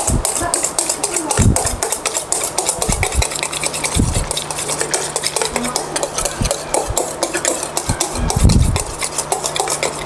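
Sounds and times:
whisk beating in metal bowl: 0.0 - 10.0.

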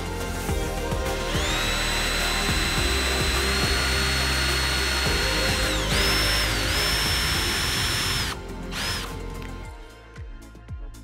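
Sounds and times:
background music: 0.0 - 11.0
cordless drill motor whine: 1.2 - 9.2.

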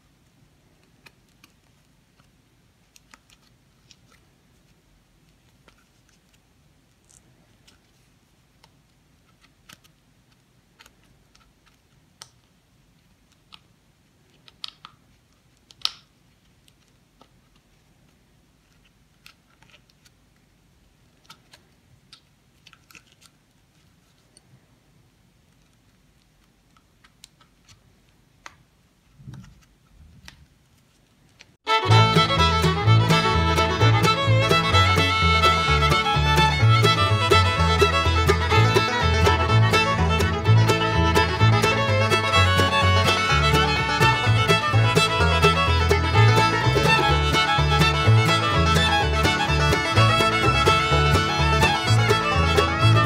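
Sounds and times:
faint clicks and scrapes: 0.8 - 12.3, 13.0 - 20.4, 21.1 - 24.5, 29.0 - 31.6.

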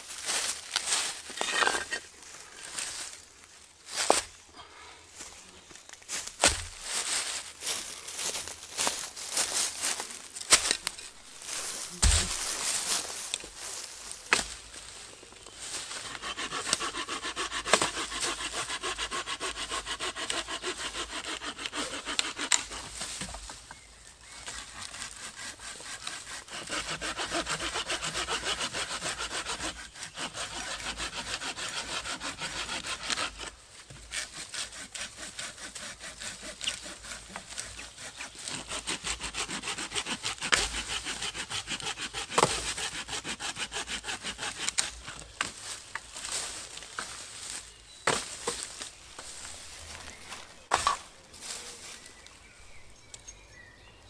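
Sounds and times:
hand saw cutting wood: 0.4 - 3.0, 8.2 - 13.0, 15.7 - 23.3, 24.2 - 51.1.

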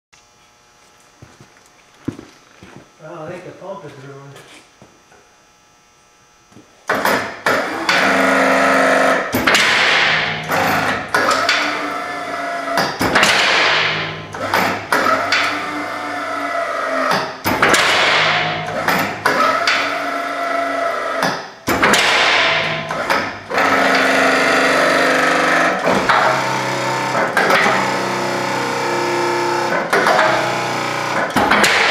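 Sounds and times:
hydraulic pump running: 6.5 - 31.9.

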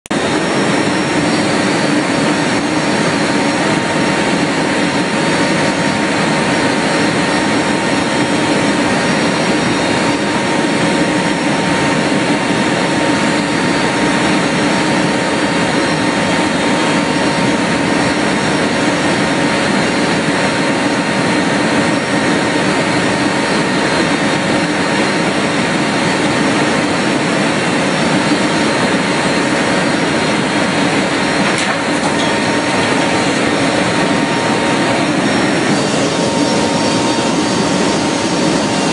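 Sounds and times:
small aircraft engine drone: 0.1 - 38.9
rushing air: 24.9 - 38.9.

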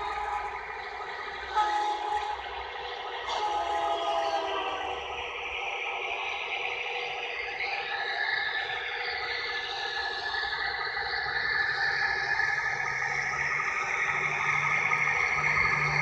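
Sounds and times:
low hum: 0.0 - 11.7
model locomotive mechanical whir: 0.0 - 16.0.

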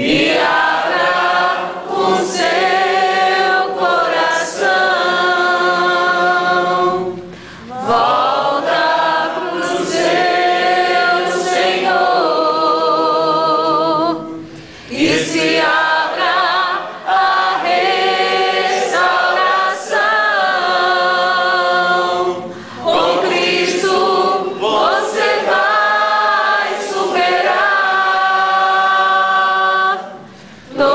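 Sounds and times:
group singing a worship song: 0.0 - 30.9.

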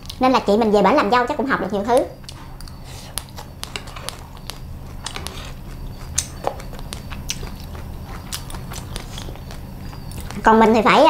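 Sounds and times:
chewing crispy food: 2.2 - 10.8.

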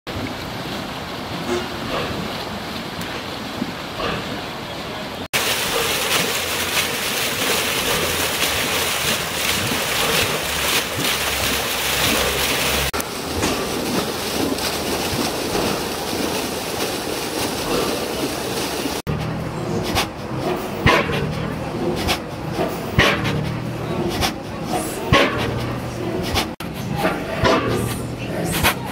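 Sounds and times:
water rushing from outfall: 0.1 - 19.0.

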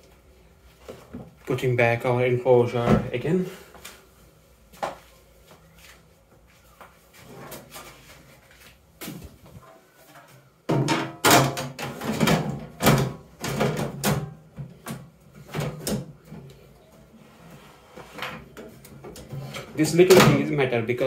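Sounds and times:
sheet-metal cover knocking and rattling: 10.7 - 14.4.

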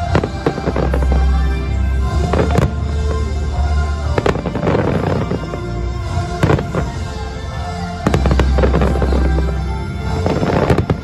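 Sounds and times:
fireworks crackling: 0.0 - 11.0
music with deep bass: 0.0 - 11.0
fireworks bangs: 2.1 - 3.3, 4.2 - 7.1, 8.0 - 11.0.

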